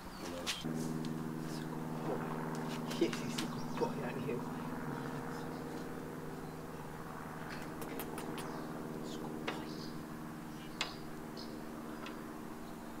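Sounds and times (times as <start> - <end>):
low mechanical hum: 0.0 - 13.0
sharp clicks: 7.5 - 8.6.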